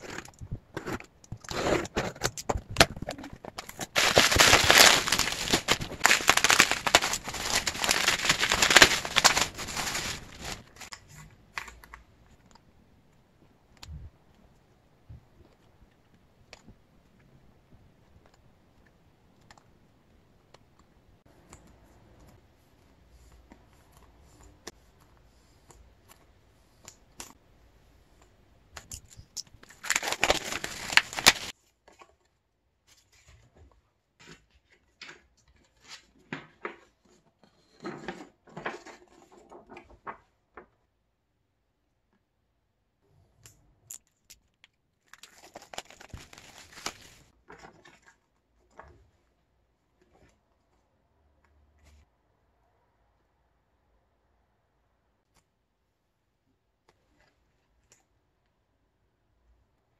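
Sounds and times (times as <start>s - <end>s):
plastic wrap crinkling: 2.3s - 11.7s, 29.6s - 31.5s, 45.0s - 47.3s.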